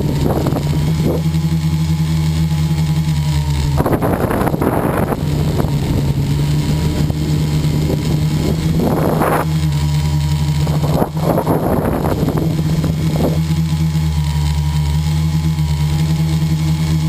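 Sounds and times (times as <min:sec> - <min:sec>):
wind rushing over microphone: 0:00.0 - 0:01.3, 0:03.6 - 0:09.6, 0:10.6 - 0:13.5
model airplane engine and propeller: 0:00.0 - 0:17.0.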